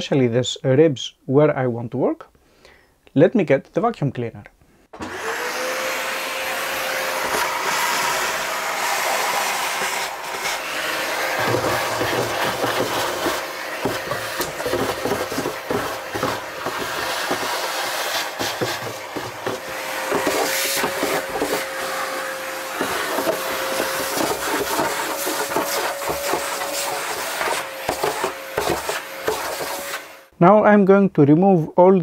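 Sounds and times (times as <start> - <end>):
vacuum cleaner whine: 5.0 - 30.3.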